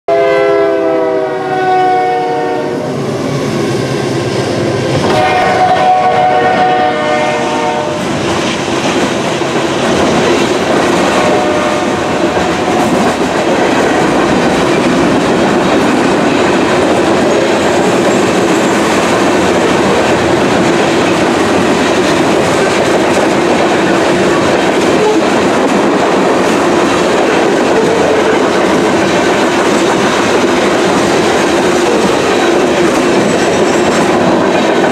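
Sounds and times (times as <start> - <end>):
train horn blasts: 0.1 - 3.1, 5.0 - 8.1, 11.1 - 12.9, 24.9 - 25.4, 27.6 - 28.5
freight cars rolling on rails: 3.1 - 34.9.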